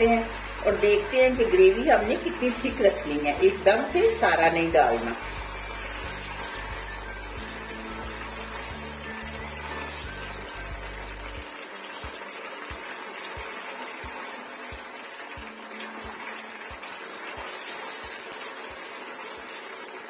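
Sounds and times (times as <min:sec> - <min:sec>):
thick sauce bubbling in a wok: 0:05.0 - 0:20.0.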